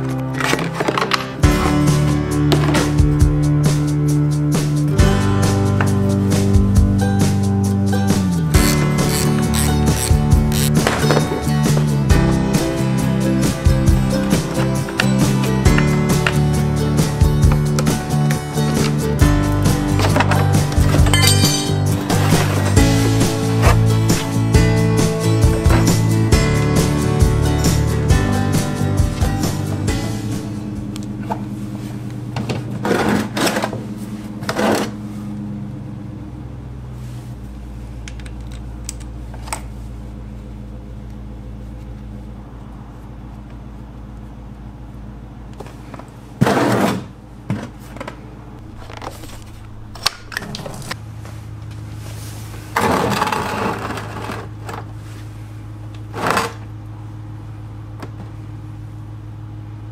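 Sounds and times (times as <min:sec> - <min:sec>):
low hum: 0:28.2 - 0:32.9, 0:48.3 - 0:52.6.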